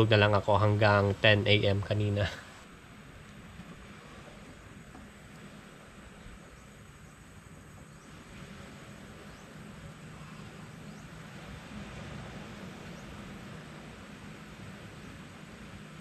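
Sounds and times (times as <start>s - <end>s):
background hiss: 0.0s - 16.0s
faint insects calling: 0.0s - 16.0s
low steady hum: 0.0s - 16.0s.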